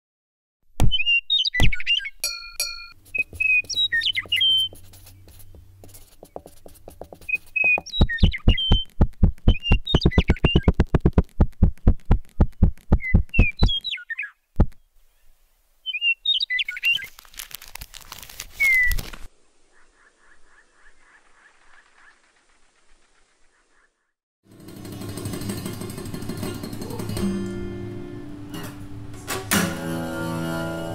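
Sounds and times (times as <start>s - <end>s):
bird-like chirps and whistles: 0.9s - 2.2s, 3.2s - 4.8s, 7.3s - 8.9s, 9.5s - 10.7s, 13.0s - 14.4s, 15.8s - 17.1s, 18.6s - 19.0s
rapid even taps: 3.1s - 13.8s, 14.6s - 14.8s.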